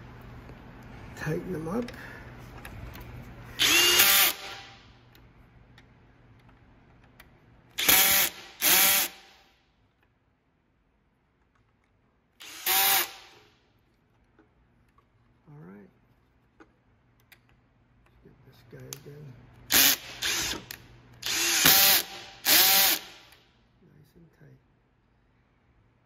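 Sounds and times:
power drill driving screws: 0:03.6 - 0:04.7, 0:07.8 - 0:09.3, 0:12.4 - 0:13.4, 0:19.7 - 0:23.4.

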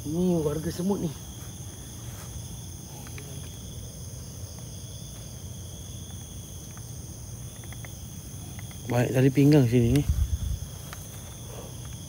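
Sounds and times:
insects trilling: 0:00.0 - 0:12.0
faint clicks: 0:07.5 - 0:09.0.

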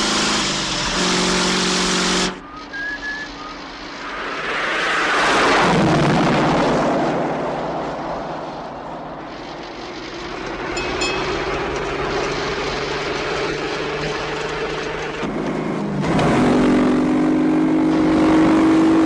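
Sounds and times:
car rushing past: 0:02.0 - 0:14.0.

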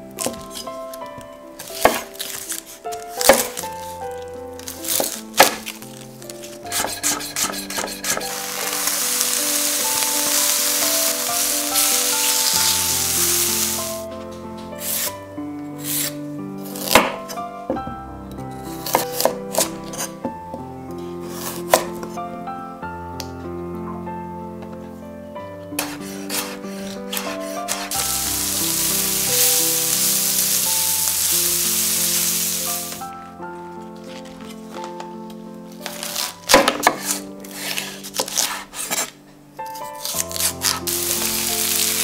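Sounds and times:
background music: 0:00.0 - 0:42.0
knife on wooden cutting board: 0:06.7 - 0:08.9, 0:14.8 - 0:15.1, 0:15.8 - 0:17.2, 0:18.8 - 0:20.1, 0:25.8 - 0:28.0, 0:36.0 - 0:39.1
sizzling in a frying pan: 0:08.3 - 0:14.0, 0:27.9 - 0:33.0, 0:40.8 - 0:42.0.

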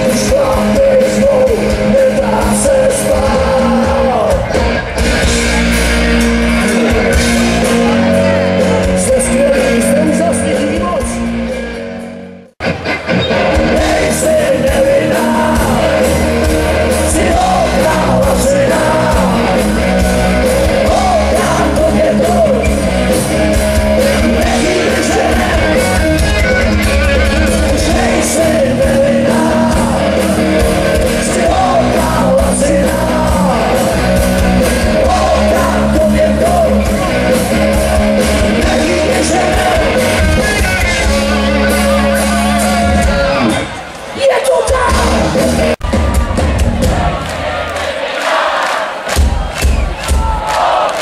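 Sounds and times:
person singing: 0:00.0 - 0:04.7, 0:13.4 - 0:23.2, 0:23.9 - 0:43.6
live rock band playing: 0:00.0 - 0:47.4.

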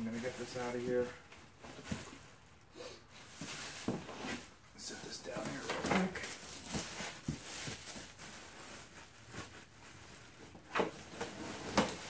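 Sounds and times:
cardboard and packing material rustling: 0:00.0 - 0:02.5, 0:03.1 - 0:12.0.

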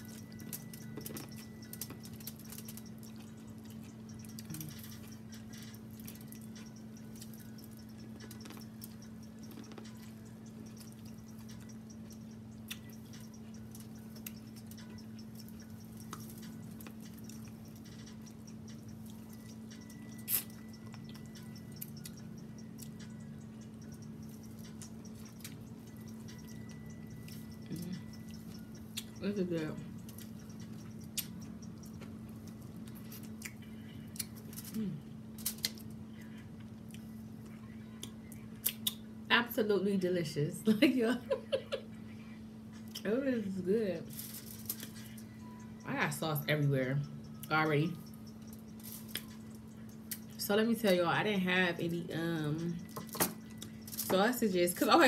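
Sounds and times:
wet chewing: 0:00.0 - 0:29.2, 0:30.0 - 0:34.8
low hum: 0:00.0 - 0:55.0.

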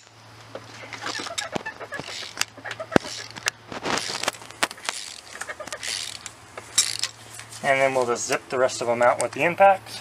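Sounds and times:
steady low hum: 0:00.0 - 0:10.0
wrench scraping: 0:00.9 - 0:07.5.

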